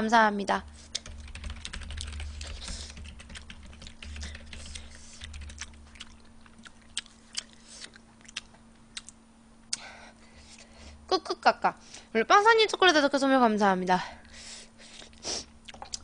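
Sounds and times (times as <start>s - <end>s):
faint low hum: 0.0s - 16.0s
keyboard typing clicks: 1.0s - 5.6s.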